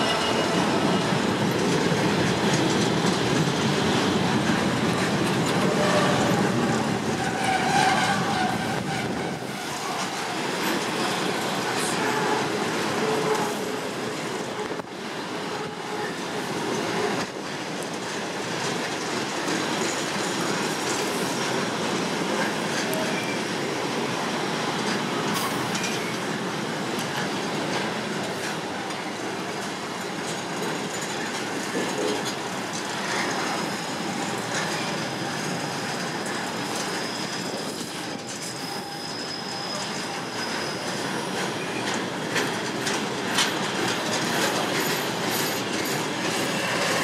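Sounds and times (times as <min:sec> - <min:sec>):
faint high wheel squeal: 0:33.5 - 0:42.0, 0:44.8 - 0:47.0.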